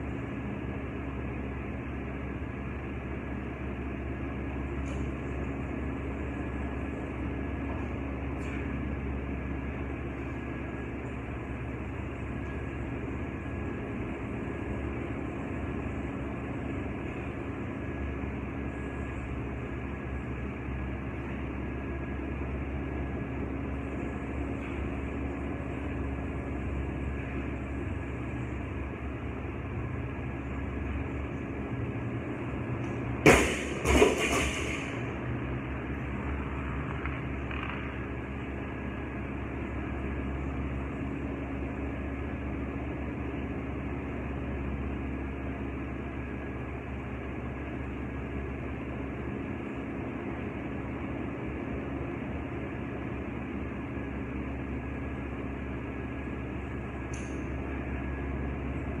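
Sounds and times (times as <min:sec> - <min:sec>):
mechanical hum: 0:00.0 - 0:59.0
barbell dropped on rubber floor: 0:33.2 - 0:35.0.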